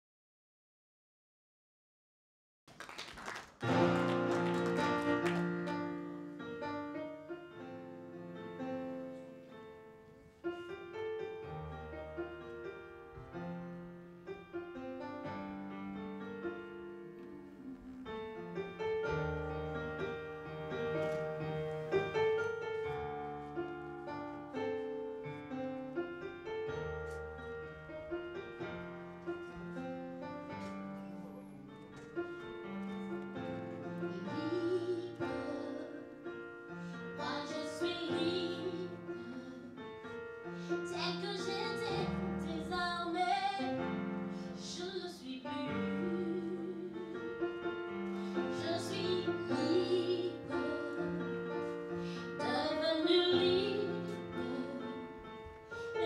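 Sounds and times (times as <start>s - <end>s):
woman singing: 34.2s - 36.4s, 37.0s - 39.9s, 40.8s - 47.6s, 48.4s - 56.0s.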